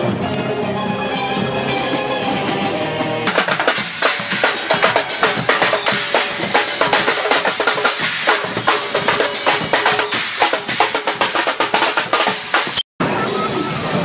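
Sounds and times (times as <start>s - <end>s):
drum line playing fast rhythm: 3.2s - 12.9s.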